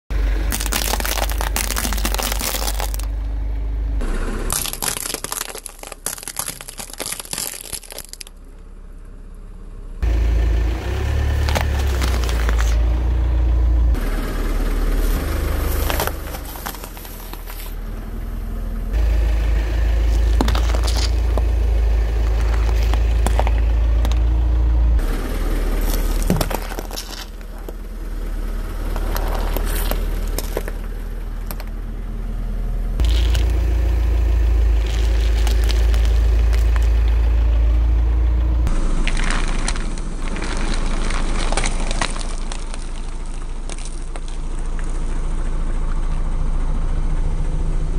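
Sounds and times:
car engine low rumble: 0:00.1 - 0:47.9
produce squashing: 0:00.4 - 0:03.2, 0:04.5 - 0:08.4, 0:11.3 - 0:13.0, 0:14.9 - 0:17.9, 0:19.0 - 0:27.9, 0:28.8 - 0:31.7, 0:33.0 - 0:45.2
tyre crushing shells on asphalt: 0:00.4 - 0:03.3, 0:04.5 - 0:08.4, 0:11.3 - 0:12.9, 0:15.6 - 0:17.8, 0:19.0 - 0:24.4, 0:25.0 - 0:28.0, 0:28.8 - 0:31.8, 0:33.0 - 0:45.2.

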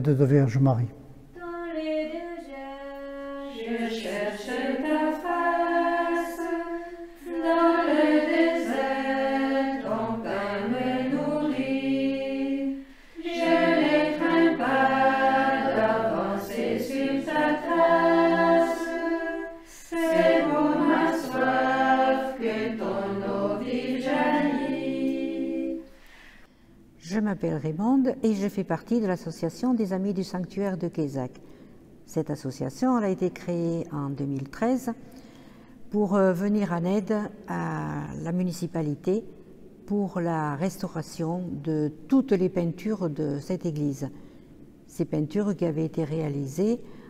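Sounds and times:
choir singing unaccompanied: 0:01.4 - 0:26.0.

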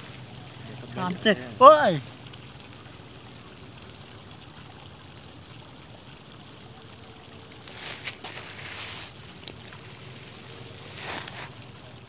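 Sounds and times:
faint outdoor hiss: 0:00.0 - 0:12.0
light tick: 0:09.4 - 0:09.8.

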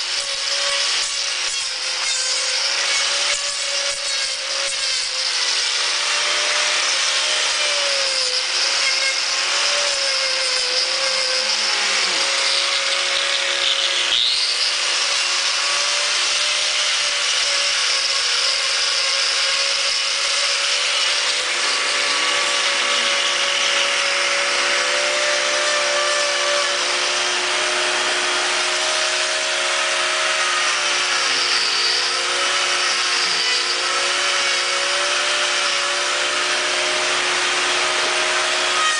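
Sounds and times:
angle grinder grinding hoof: 0:00.0 - 0:38.9.

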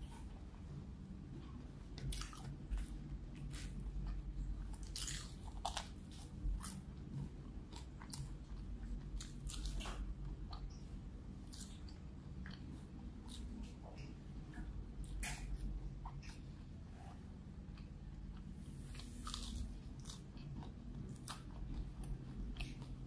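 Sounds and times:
wet chewing: 0:01.4 - 0:23.0
crunching fried chicken: 0:02.0 - 0:14.1.

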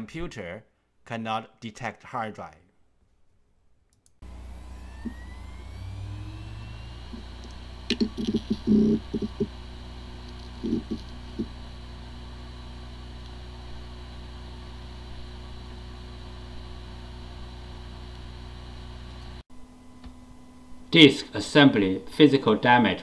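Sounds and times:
hard drive spin-up whine: 0:04.2 - 0:20.8
hard drive low hum: 0:04.2 - 0:22.3
hard drive click: 0:07.1 - 0:09.6, 0:10.2 - 0:11.6
hard drive head-seek knocks: 0:07.9 - 0:09.6.

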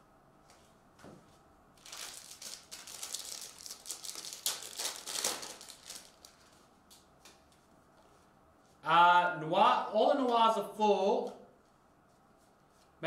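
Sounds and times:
foil wrapper crinkling: 0:01.8 - 0:06.7.

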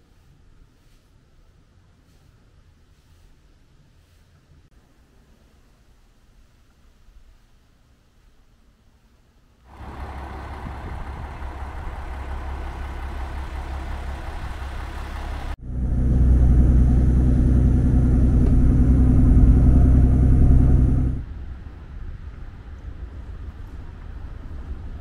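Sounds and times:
vehicle engine rumbling: 0:09.7 - 0:21.4
high-pitched whine: 0:09.8 - 0:21.3.

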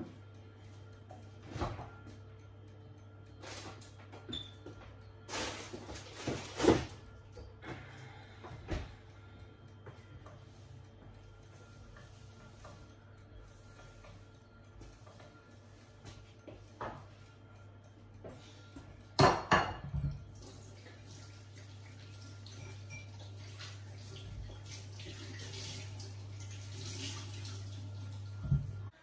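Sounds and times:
low steady hum: 0:00.0 - 0:29.0
dishes clattering: 0:19.2 - 0:20.2
tap water running: 0:19.2 - 0:29.0.

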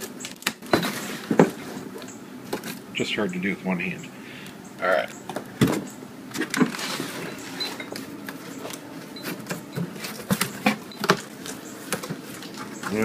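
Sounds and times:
cardboard rustling and scraping: 0:00.0 - 0:02.8, 0:05.6 - 0:13.0.

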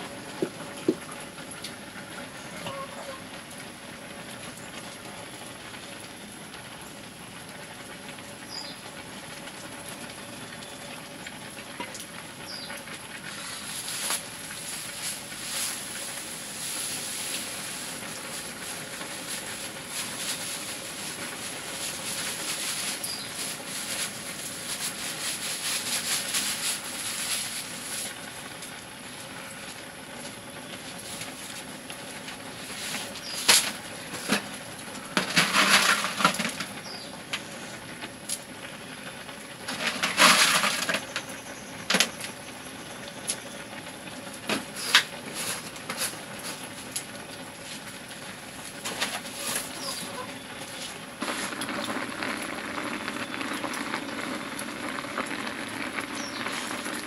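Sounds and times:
wood fire crackling: 0:00.0 - 0:57.0
pot hissing: 0:12.3 - 0:38.9, 0:39.6 - 0:57.0.

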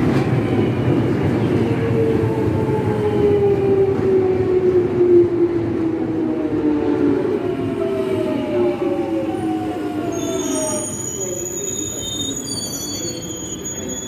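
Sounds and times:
wheels and brakes squealing: 0:10.1 - 0:14.0.

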